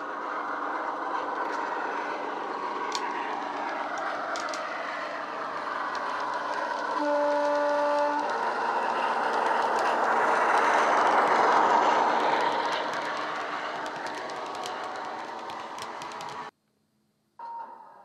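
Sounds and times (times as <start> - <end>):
diesel locomotive engine: 0.0 - 16.5
locomotive horn: 7.0 - 9.9.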